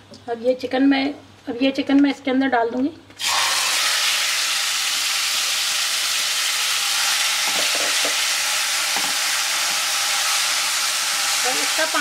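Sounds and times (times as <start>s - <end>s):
chicken sizzling in a frying pan: 3.2s - 12.0s.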